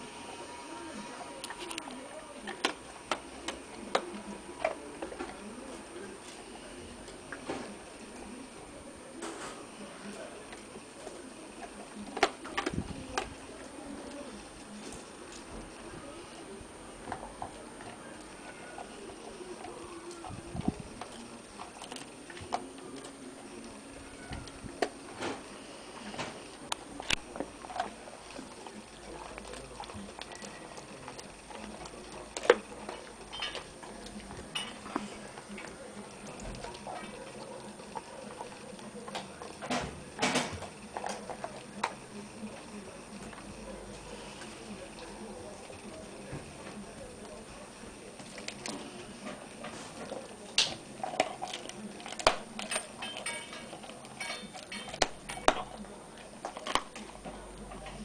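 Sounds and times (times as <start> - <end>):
dog chewing and crunching bone: 17.0 - 58.0
bone cracking: 50.5 - 55.8.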